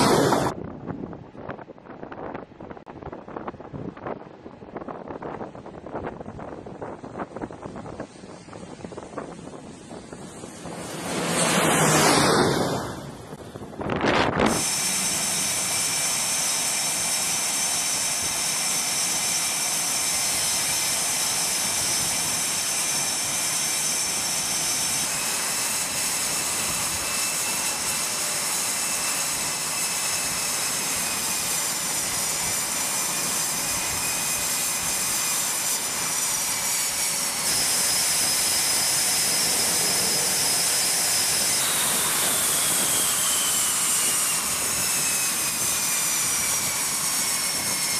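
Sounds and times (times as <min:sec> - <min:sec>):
jet engines roaring with high whine: 0:00.0 - 0:47.9.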